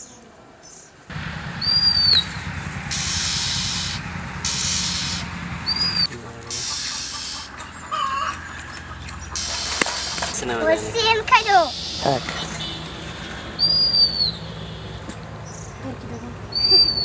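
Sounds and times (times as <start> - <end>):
owlets giving raspy hissing calls: 1.2 - 15.1.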